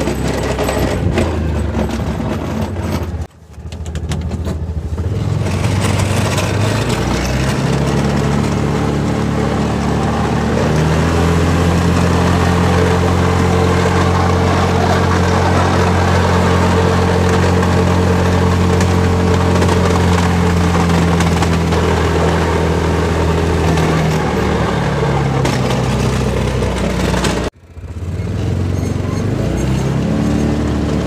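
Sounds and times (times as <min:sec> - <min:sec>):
utility vehicle engine under load: 0:00.0 - 0:31.0.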